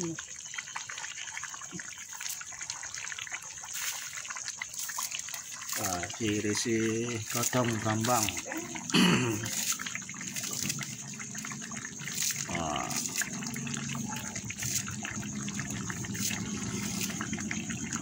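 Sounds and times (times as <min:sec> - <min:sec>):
sauce bubbling and popping: 0:00.0 - 0:18.0.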